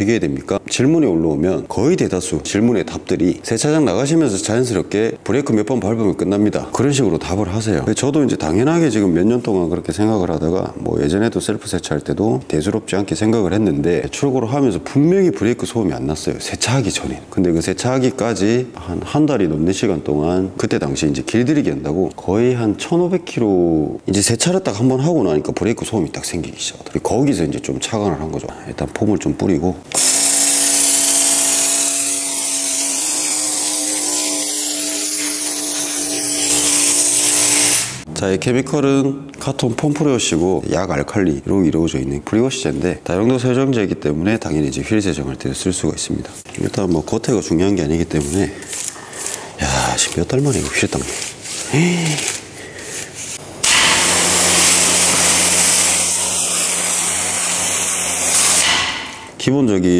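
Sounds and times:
foam sprayer motor whining: 29.9 - 38.0, 53.6 - 58.7
foam spraying hiss: 54.0 - 58.8.

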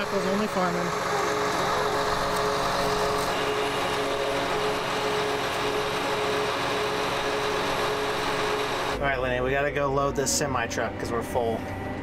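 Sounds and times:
tractor diesel engine idling: 0.0 - 9.0.

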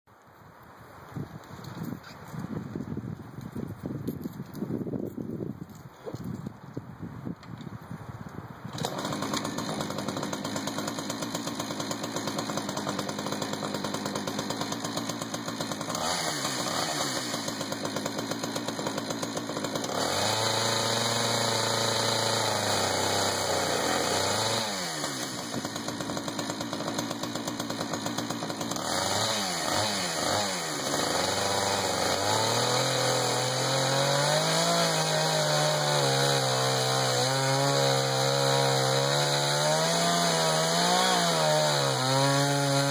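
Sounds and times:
chainsaw idling and revving: 8.7 - 42.9
chainsaw ripping through wood: 8.7 - 42.9.

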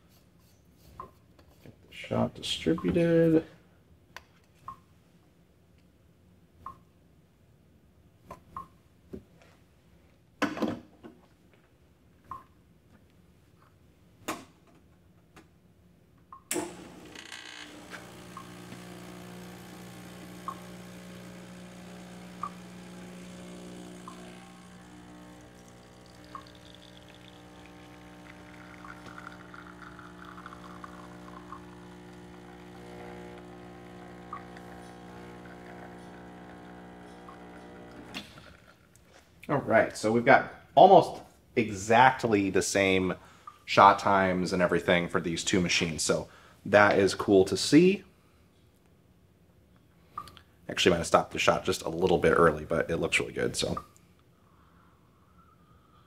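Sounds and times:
pump switching on click: 16.4 - 38.3
pump humming: 16.5 - 38.8
espresso pouring into glass: 16.6 - 38.9.

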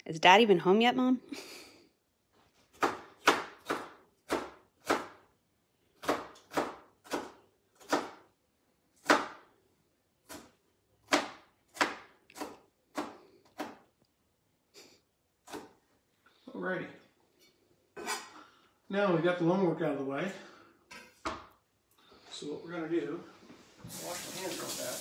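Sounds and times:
knife chopping on cutting board: 2.7 - 5.2, 6.0 - 8.2, 9.0 - 9.4, 10.2 - 13.8.

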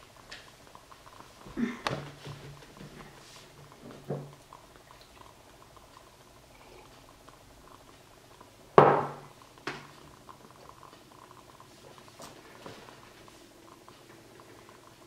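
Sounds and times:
mug knocking on wooden table: 8.8 - 9.2.

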